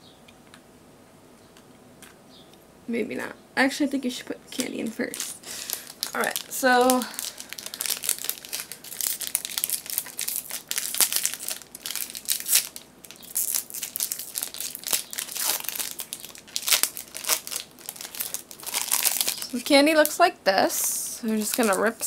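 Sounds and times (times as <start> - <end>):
plastic packaging crinkling: 4.5 - 20.2, 20.8 - 22.0.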